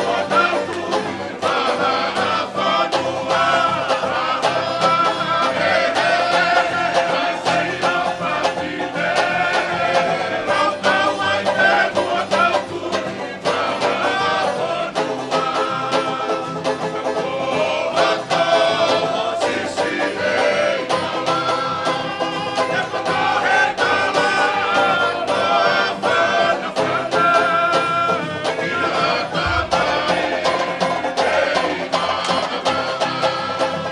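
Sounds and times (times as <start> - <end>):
group singing: 0.0 - 33.9
strummed acoustic guitars: 0.0 - 33.9.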